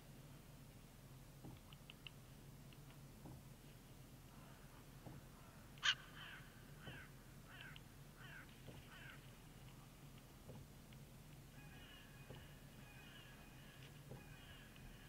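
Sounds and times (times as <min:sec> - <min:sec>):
crow calling: 0:05.4 - 0:09.4, 0:11.6 - 0:15.0.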